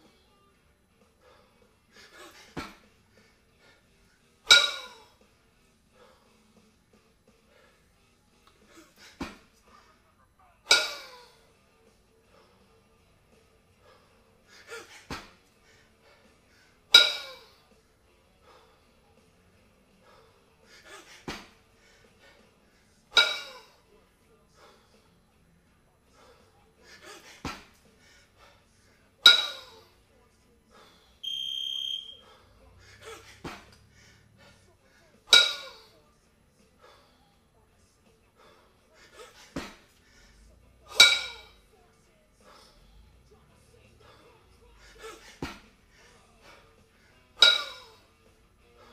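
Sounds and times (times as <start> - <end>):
kettlebells clanging together: 4.5 - 5.1, 10.7 - 11.3, 16.9 - 17.6, 23.1 - 23.8, 29.2 - 29.9, 35.3 - 35.9, 40.9 - 41.6, 47.3 - 48.1
electronic beep: 31.2 - 32.2.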